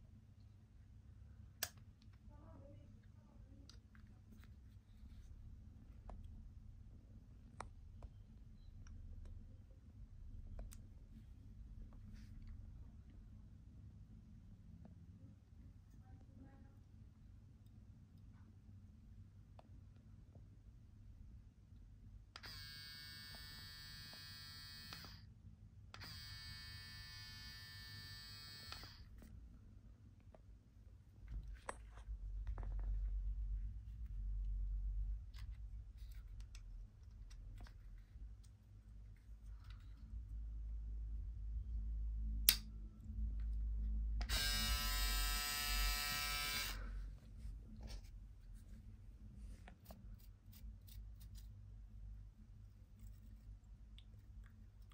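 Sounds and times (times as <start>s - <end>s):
electric shaver buzzing: 22.4s - 25.2s, 26.0s - 29.0s, 44.2s - 46.8s.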